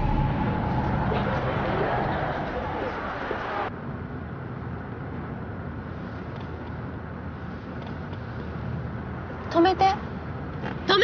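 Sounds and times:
loud wide noise: 0.0s - 3.8s
vehicle engine rumbling: 0.0s - 5.2s
road noise: 0.0s - 11.0s.

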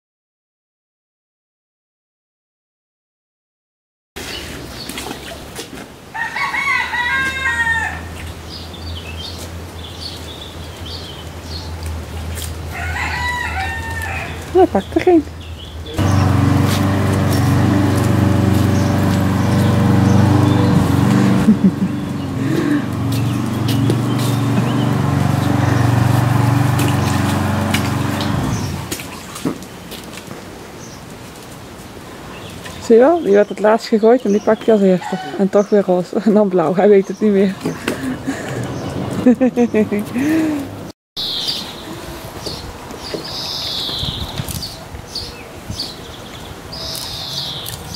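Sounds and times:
rooster crowing: 6.1s - 8.2s, 12.7s - 14.5s, 35.0s - 35.4s
motor humming: 16.0s - 29.0s
toys splashing into water: 26.6s - 29.8s.

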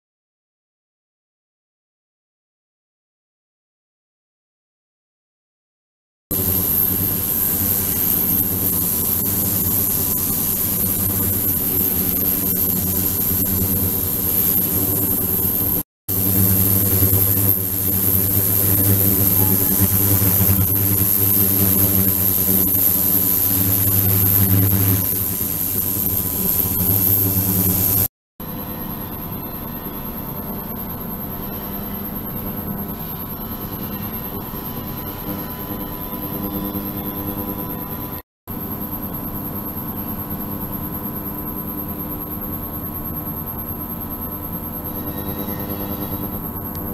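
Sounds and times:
ultrasonic hum with high whine: 6.3s - 28.1s, 38.8s - 46.9s.

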